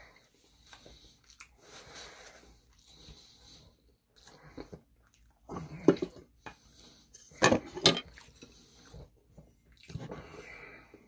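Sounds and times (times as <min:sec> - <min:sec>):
tableware clattering: 0:07.4 - 0:08.1.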